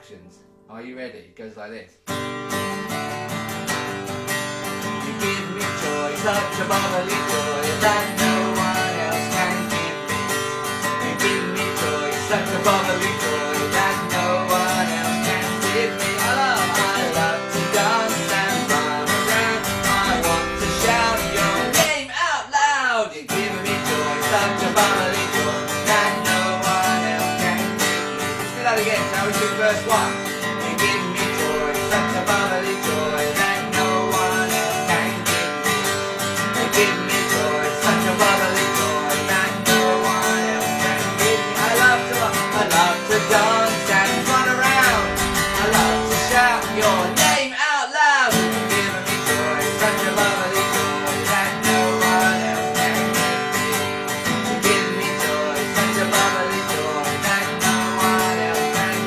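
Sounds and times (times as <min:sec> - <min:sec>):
acoustic guitar strummed: 0:02.0 - 0:59.0
man and woman singing: 0:05.0 - 0:59.0.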